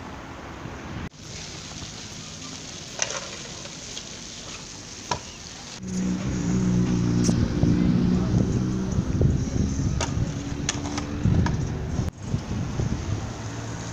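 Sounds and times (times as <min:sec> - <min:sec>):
scooter wheels grinding on stone: 0:02.4 - 0:05.5.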